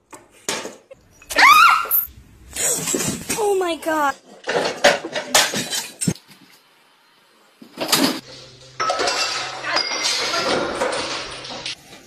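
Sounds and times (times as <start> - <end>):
dishes clattering: 4.4 - 6.2, 7.8 - 12.0.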